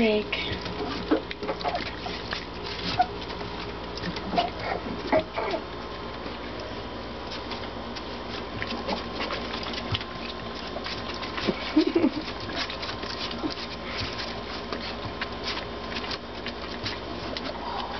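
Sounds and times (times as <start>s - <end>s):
puppies lapping milk: 0.0s - 17.9s.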